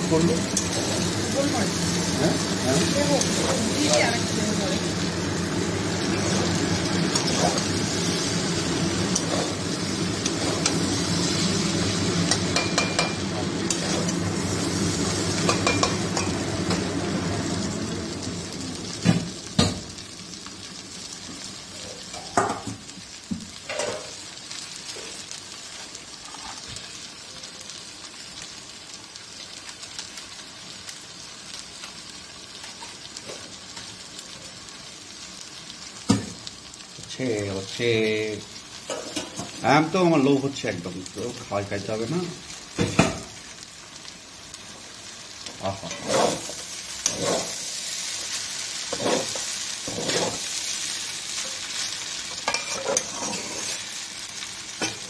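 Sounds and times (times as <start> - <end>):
noodles sizzling in a wok: 0.0 - 55.0
metal spatula clanking on pan: 12.3 - 13.8, 15.4 - 16.4.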